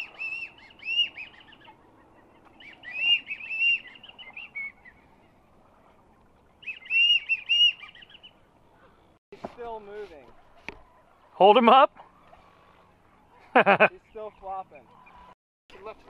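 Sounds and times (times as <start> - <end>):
ducks whistling calls: 0.0 - 9.0, 12.0 - 15.4.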